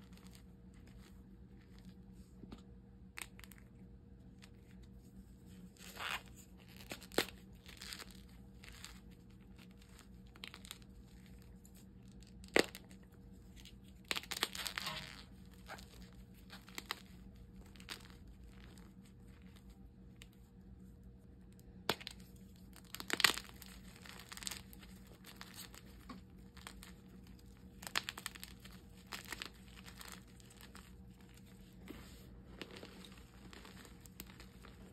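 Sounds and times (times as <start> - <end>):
chalk crumbling by hand: 21.8 - 34.9.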